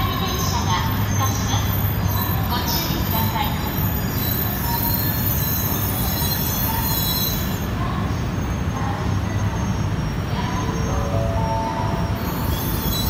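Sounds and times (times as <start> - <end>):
train rumbling slowly: 0.0 - 13.0
high-pitched wheel squealing: 8.4 - 13.0.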